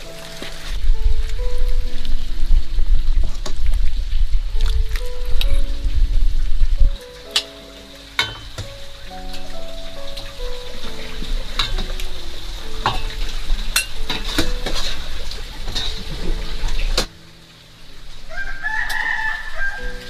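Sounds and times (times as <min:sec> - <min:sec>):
background music: 0:00.0 - 0:03.4, 0:04.4 - 0:20.0
rooster crowing: 0:18.2 - 0:20.0.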